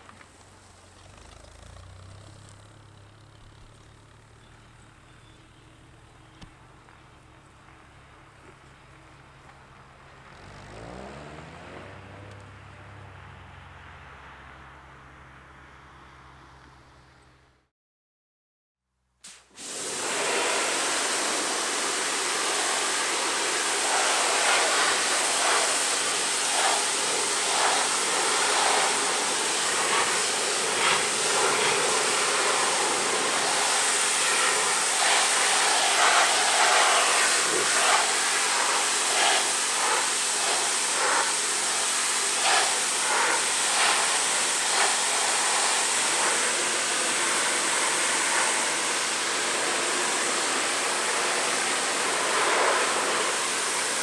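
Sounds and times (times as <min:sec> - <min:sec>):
pressure washer spray hissing: 0:19.2 - 0:54.0.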